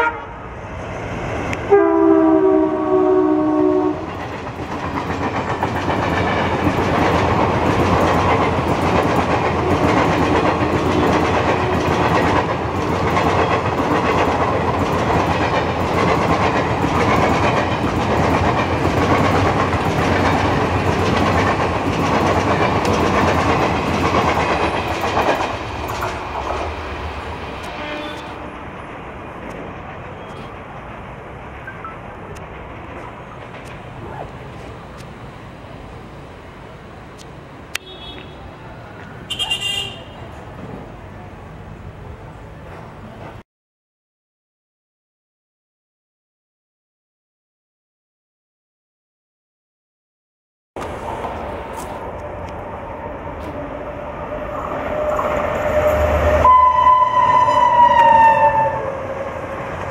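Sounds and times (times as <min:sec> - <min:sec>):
locomotive horn: 0:00.0 - 0:00.4, 0:01.7 - 0:04.1, 0:27.6 - 0:28.7, 0:39.3 - 0:40.3, 0:54.9 - 0:59.3
train wheels clickety-clack: 0:04.0 - 0:28.4, 0:32.3 - 0:35.2, 0:42.6 - 0:43.4.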